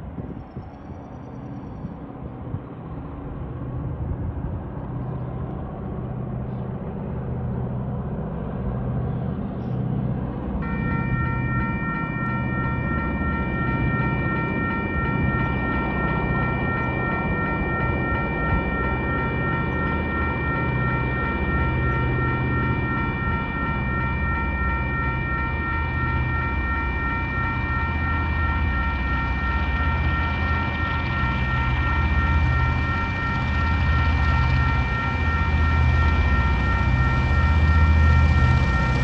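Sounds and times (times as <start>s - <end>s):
diesel locomotive engines humming: 1.4s - 39.0s
level crossing warning bell: 10.3s - 39.0s.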